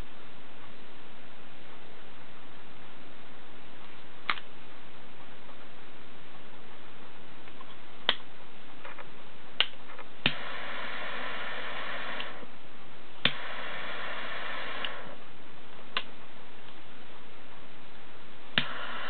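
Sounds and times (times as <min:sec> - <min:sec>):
torch jet flame hissing: 0:10.2 - 0:12.5, 0:13.2 - 0:15.2, 0:18.6 - 0:19.0.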